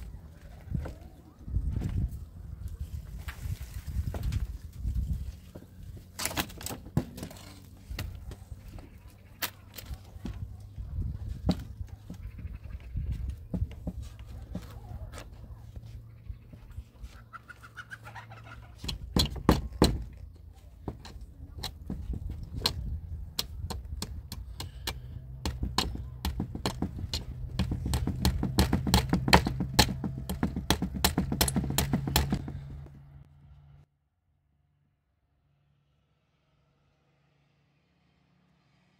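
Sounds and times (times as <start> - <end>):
steel rod knocking on wooden pole: 24.6 - 32.9.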